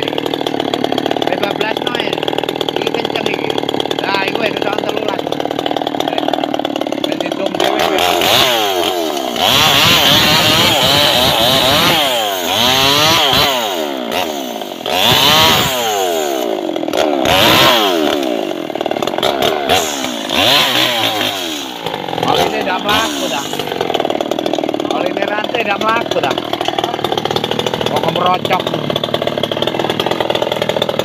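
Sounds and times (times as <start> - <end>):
chainsaw cutting log: 0.0 - 31.0
chainsaw engine revving: 0.0 - 31.0.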